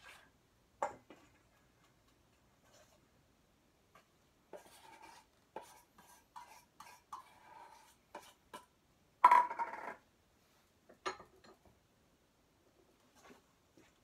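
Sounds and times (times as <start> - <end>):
utensil scraping a steel bowl: 0.0 - 0.3, 4.5 - 8.7.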